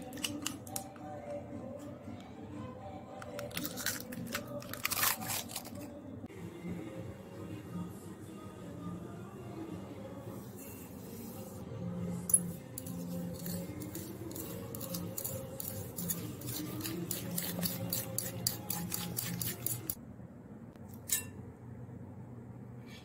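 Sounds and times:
fork beating eggs in glass bowl: 12.4s - 20.0s
sharp clink of fork on glass: 21.1s - 21.4s.

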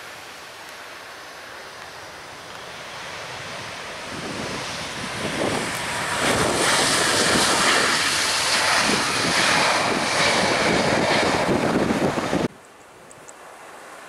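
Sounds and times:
jet engines roaring: 1.4s - 12.5s
wind buffeting microphone: 3.2s - 12.6s.

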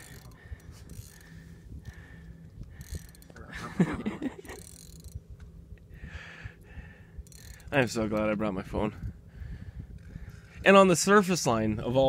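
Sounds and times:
fishing reel ratcheting: 0.0s - 3.5s, 4.3s - 5.2s, 7.2s - 8.4s.

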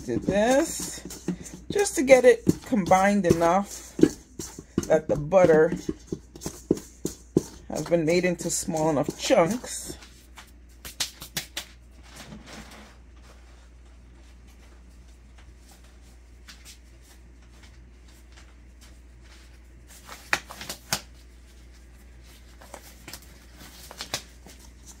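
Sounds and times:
quiet low hum: 11.6s - 25.0s.

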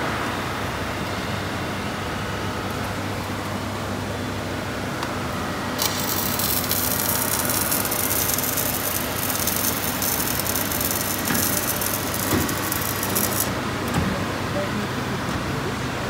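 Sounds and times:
arc welding crackling hiss: 5.8s - 13.6s.

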